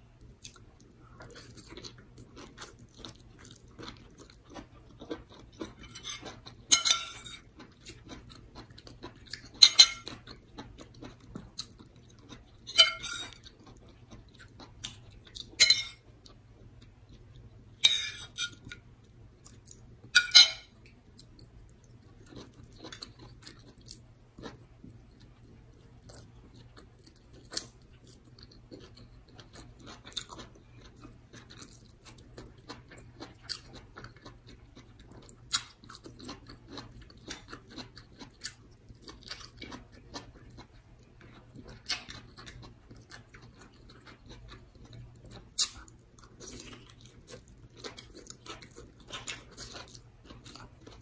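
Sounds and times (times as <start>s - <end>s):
soft chewing: 0.1s - 51.0s.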